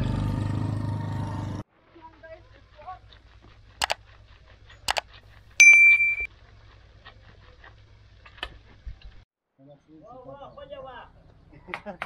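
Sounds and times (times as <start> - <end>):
bell-like metallic ding: 5.6 - 6.3.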